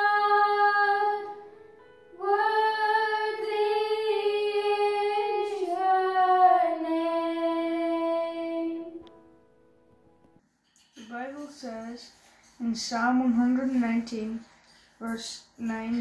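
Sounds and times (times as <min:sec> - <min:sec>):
girls singing together: 0:00.0 - 0:01.5, 0:02.1 - 0:09.0.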